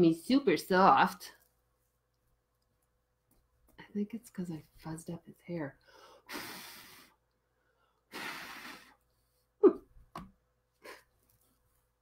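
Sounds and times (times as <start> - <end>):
person humming: 9.6 - 9.9.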